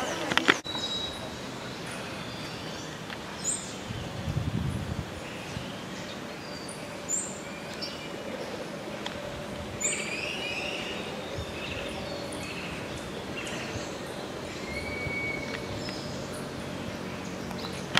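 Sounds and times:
faint steady drone: 0.0s - 17.9s
birds chirping and whistling: 0.6s - 8.7s, 9.7s - 17.9s.

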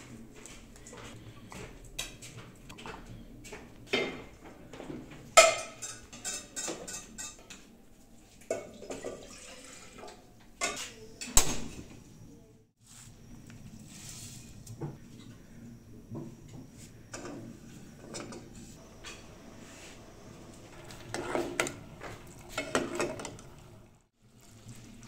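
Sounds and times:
steel kitchenware clattering: 5.3s - 7.7s, 20.8s - 23.4s.

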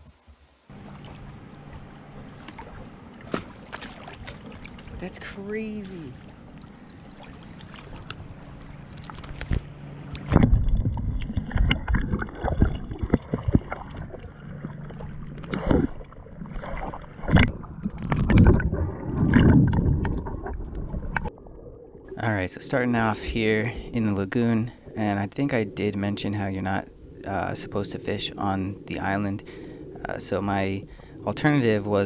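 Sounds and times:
water bumps on camera: 0.0s - 5.0s
water splashing: 0.1s - 32.0s
underwater sloshing: 0.7s - 32.0s.

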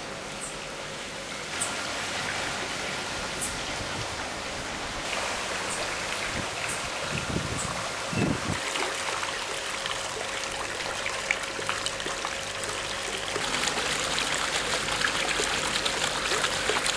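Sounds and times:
water running and trickling: 0.6s - 16.9s
small water splashes: 5.0s - 16.9s
wind thumps on microphone: 6.3s - 8.6s.

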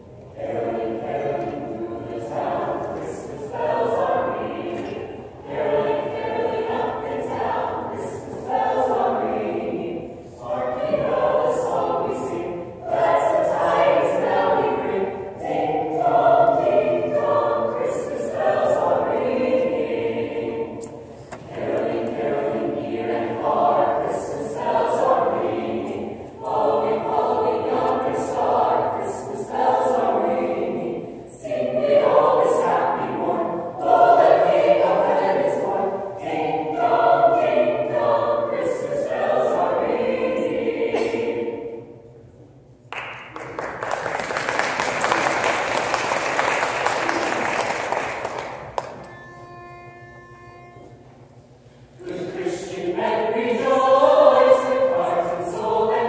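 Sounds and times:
choir singing a cappella: 0.0s - 42.6s, 43.8s - 56.0s.

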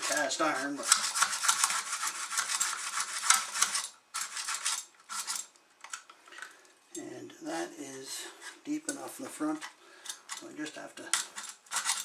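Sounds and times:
hacksaw sawing plastic pipe: 0.0s - 5.4s.

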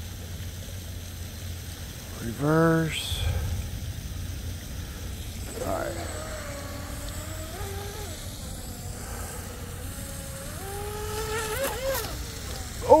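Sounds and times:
rc boat motor whining: 4.0s - 13.0s.

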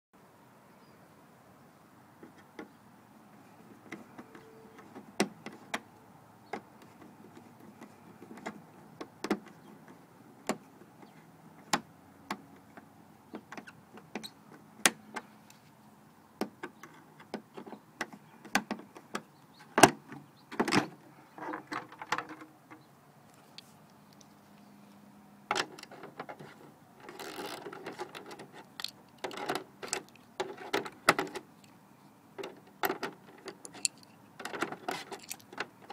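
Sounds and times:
plastic cover rattling and scraping: 25.6s - 31.3s
screwdriver clicking and scraping: 25.6s - 31.3s, 32.4s - 35.9s.

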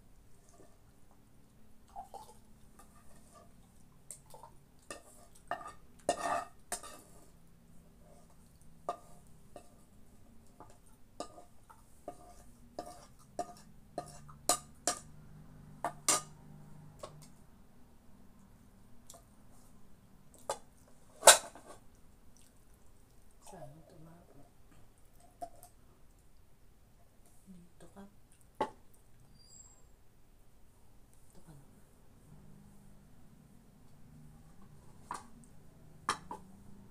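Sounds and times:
dishes clinking and scraping: 2.0s - 7.4s, 8.0s - 15.2s, 15.8s - 17.3s, 20.4s - 21.8s, 36.0s - 36.5s.

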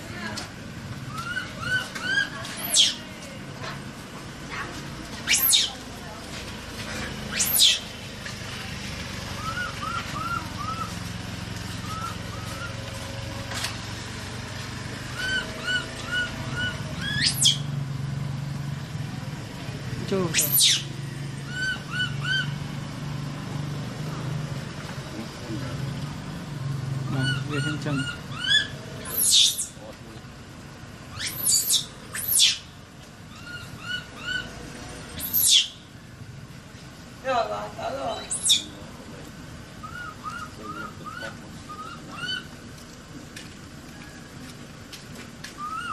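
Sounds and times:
low engine hum: 0.0s - 45.9s
baby monkey chirping cries: 1.1s - 3.0s, 5.3s - 5.8s, 7.3s - 7.9s, 9.4s - 11.0s, 11.8s - 12.8s, 15.2s - 17.7s, 20.3s - 20.9s, 21.5s - 22.6s, 27.1s - 29.8s, 31.1s - 32.7s, 33.3s - 34.5s, 35.2s - 35.9s, 38.0s - 38.8s, 39.8s - 42.6s, 45.6s - 45.9s
monkey sharp squeal: 1.2s - 3.0s, 5.2s - 5.7s, 7.3s - 7.8s, 15.2s - 17.6s, 20.3s - 20.9s, 27.2s - 29.8s, 31.1s - 32.7s, 35.2s - 35.8s, 38.2s - 38.8s.

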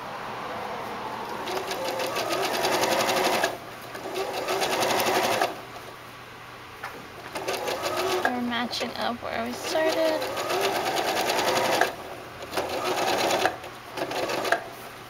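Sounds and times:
sewing machine sewing: 1.4s - 5.6s, 7.3s - 8.4s, 9.6s - 14.7s.

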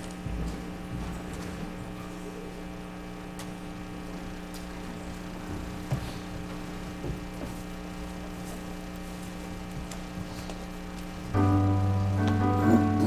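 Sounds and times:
electrical hum: 0.0s - 13.0s
keyboard sustained chord: 11.3s - 13.0s.

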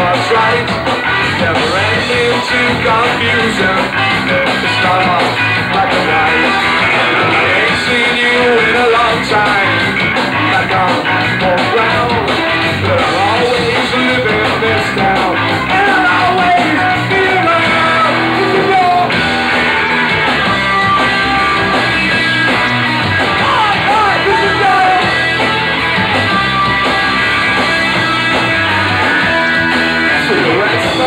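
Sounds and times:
man singing: 0.0s - 19.2s, 23.4s - 25.2s, 29.8s - 31.0s
rock band playing live: 0.0s - 31.0s.

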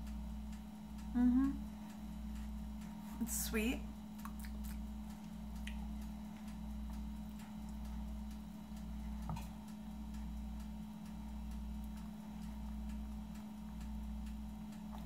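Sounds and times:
faint light ticks: 0.0s - 3.0s, 4.2s - 15.0s
low pulsing hum: 0.0s - 15.0s.

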